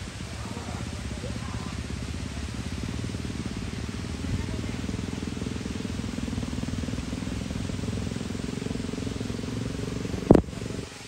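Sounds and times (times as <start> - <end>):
vehicle engine rumbling: 0.0 - 11.0
loud thump: 10.3 - 10.5.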